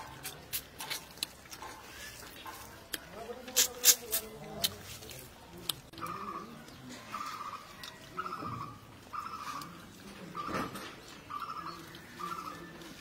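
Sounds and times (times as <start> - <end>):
bird calling: 6.0 - 12.7.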